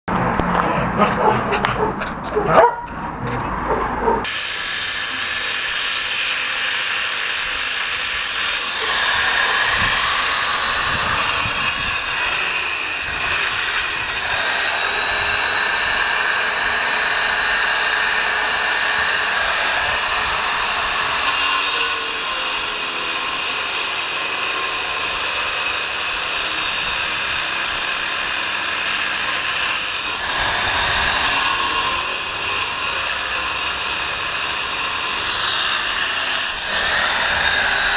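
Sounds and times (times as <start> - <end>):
angle grinder cutting concrete: 4.2 - 37.9.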